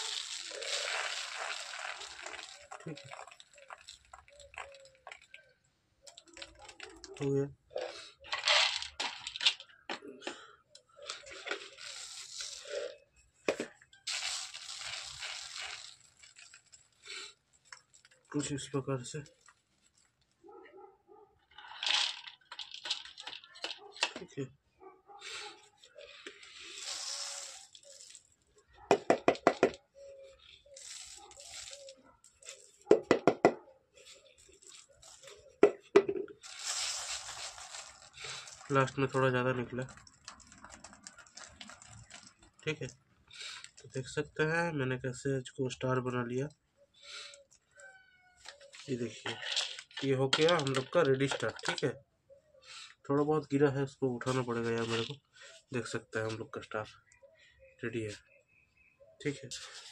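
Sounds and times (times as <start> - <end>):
pellets rattling over wire mesh: 0.0 - 5.3, 8.3 - 9.6, 11.0 - 12.9, 14.0 - 17.3, 21.6 - 23.8, 26.0 - 28.4, 30.3 - 32.8, 36.4 - 42.7, 48.4 - 51.8
plastic sheet crinkling: 0.0 - 7.2, 10.9 - 13.0, 14.0 - 18.4, 25.9 - 28.4, 30.2 - 32.9, 34.0 - 35.6, 36.4 - 42.8
knocks on plastic container: 32.9 - 33.6.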